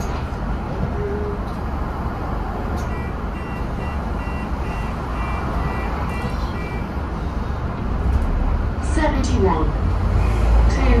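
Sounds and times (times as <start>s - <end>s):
diesel bus engine idling: 0.0s - 11.0s.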